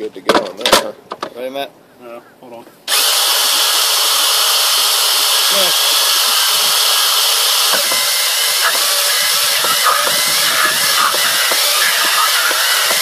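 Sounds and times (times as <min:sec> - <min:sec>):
electric facing tool running: 0:02.9 - 0:13.0.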